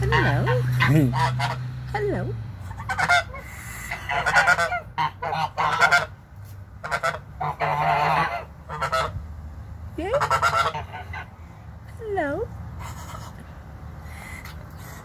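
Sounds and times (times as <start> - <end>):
geese honking: 0.0 - 1.7, 2.6 - 6.2, 6.8 - 9.2, 10.0 - 11.3.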